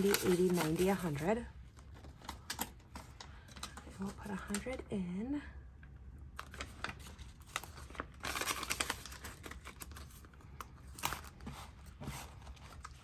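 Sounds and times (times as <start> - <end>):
paper banknotes rustling: 0.0 - 1.3
plastic envelope crinkling: 0.0 - 4.9, 6.3 - 13.0.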